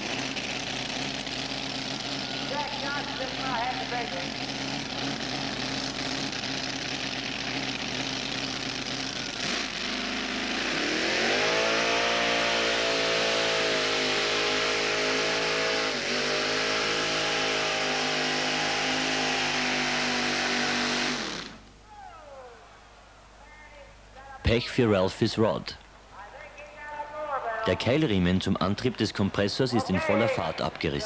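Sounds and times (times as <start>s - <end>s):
tractor engine revving under load: 0.0s - 22.7s.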